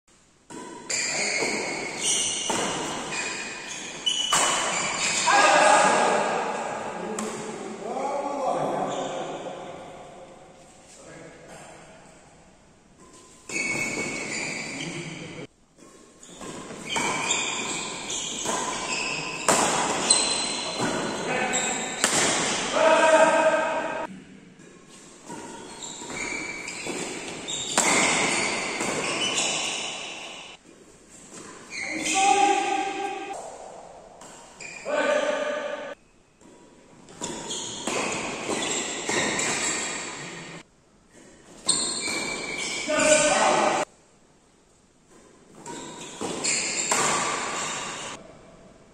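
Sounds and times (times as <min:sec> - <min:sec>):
racket hitting shuttlecock: 0:00.5 - 0:07.6, 0:15.8 - 0:43.9, 0:45.1 - 0:48.2
shoes squeaking on court: 0:00.6 - 0:05.5, 0:13.0 - 0:22.7, 0:24.6 - 0:33.5, 0:34.2 - 0:35.7, 0:36.3 - 0:43.9, 0:45.1 - 0:48.2.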